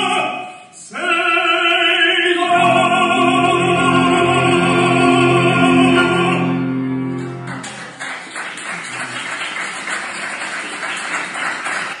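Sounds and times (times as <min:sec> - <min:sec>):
tenor and piano held chord: 0:02.6 - 0:07.8
audience applause: 0:07.1 - 0:12.0.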